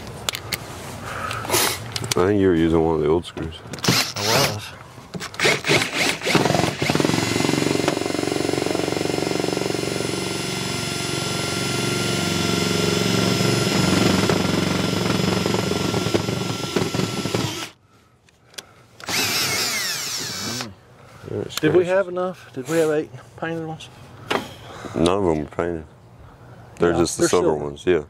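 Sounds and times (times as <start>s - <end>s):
cordless drill whining: 3.8s - 4.6s, 5.3s - 17.8s, 19.0s - 20.7s.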